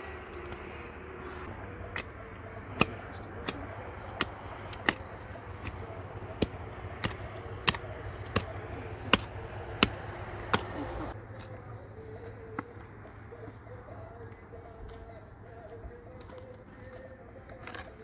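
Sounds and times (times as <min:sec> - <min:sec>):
mattock striking stony soil: 0:01.6 - 0:11.5.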